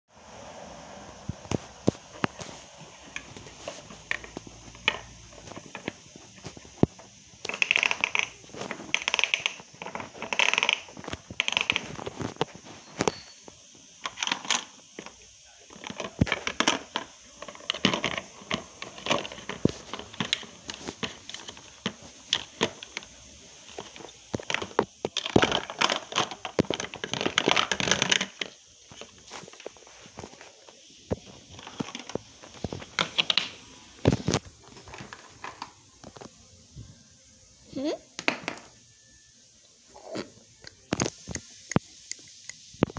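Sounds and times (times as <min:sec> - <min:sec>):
plastic toy pans clattering: 0:02.2 - 0:30.5, 0:31.1 - 0:36.2, 0:38.2 - 0:38.8.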